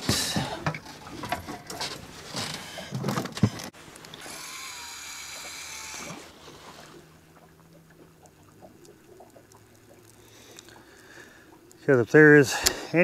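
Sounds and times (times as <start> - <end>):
gear knocking and rustling: 0.0 - 3.7
fishing reel spool whirring: 4.1 - 8.2.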